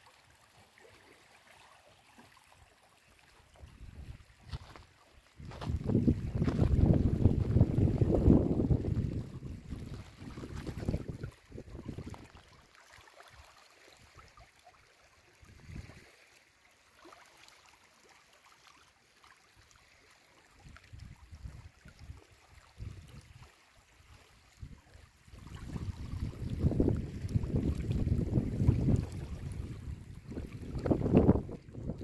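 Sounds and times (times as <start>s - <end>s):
small waves lapping on stones: 0.1s - 32.0s
wind buffeting microphone: 5.4s - 12.3s, 24.6s - 32.0s.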